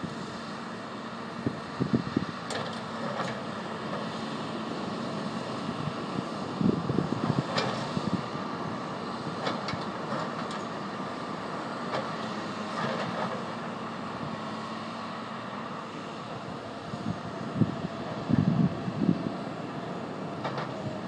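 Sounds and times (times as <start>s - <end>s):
distant excavator rumble: 0.0s - 21.0s.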